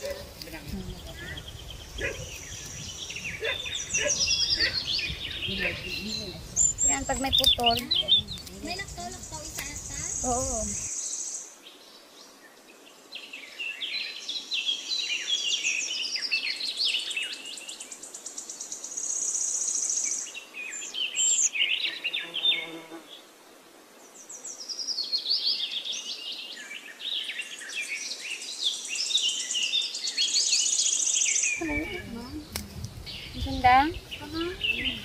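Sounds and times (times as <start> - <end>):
songbirds chirping: 0.0 - 35.0.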